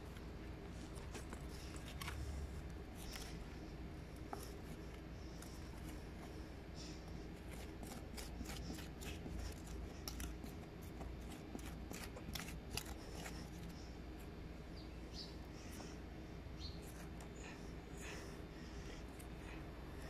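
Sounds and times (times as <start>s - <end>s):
metal spoon scraping sandy soil: 7.3s - 13.8s.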